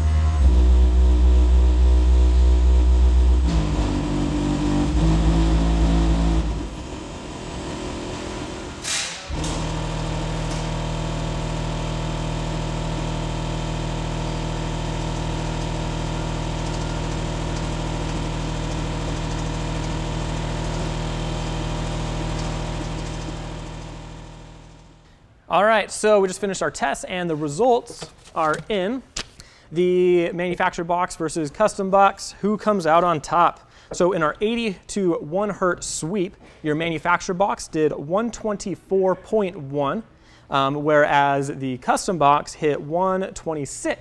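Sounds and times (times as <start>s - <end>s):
subwoofer playing bass-heavy music: 0.0s - 8.4s, 9.4s - 25.0s
high sweep tone: 0.0s - 8.9s
low bass test tone: 0.0s - 25.0s.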